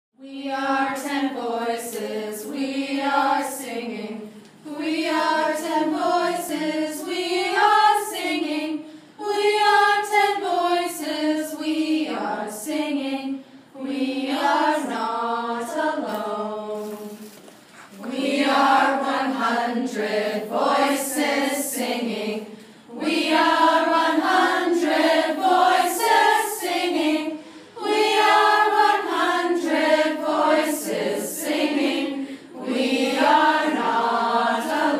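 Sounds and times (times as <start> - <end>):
group singing unaccompanied: 0.2 - 34.9.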